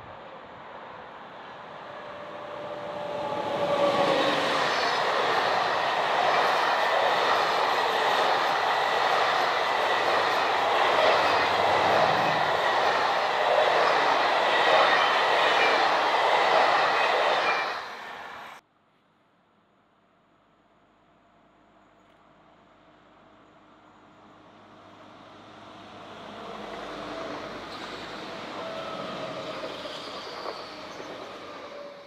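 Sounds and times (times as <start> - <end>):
electric locomotive tone: 1.4 - 18.6, 25.9 - 32.0
train wheels rolling on rails: 1.4 - 18.6, 26.1 - 32.0.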